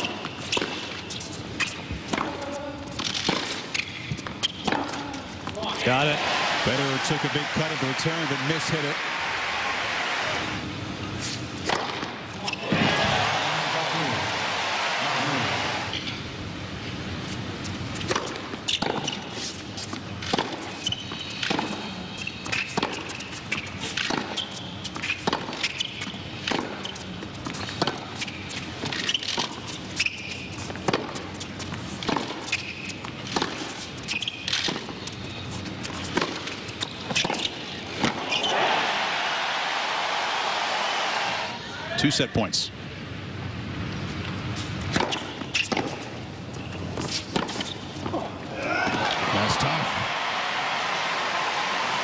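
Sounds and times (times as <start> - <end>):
tennis racquet striking ball: 0.0 - 1.0, 1.6 - 5.2, 11.6 - 12.2, 20.3 - 21.8, 22.5 - 26.9, 27.7 - 28.1, 30.7 - 31.3, 32.0 - 38.6, 44.8 - 46.3, 47.0 - 49.2
tennis ball bouncing: 0.0 - 5.6, 11.6 - 12.2, 18.0 - 38.6, 44.8 - 49.2
crowd applause: 6.0 - 10.6, 12.8 - 15.9, 49.0 - 52.0.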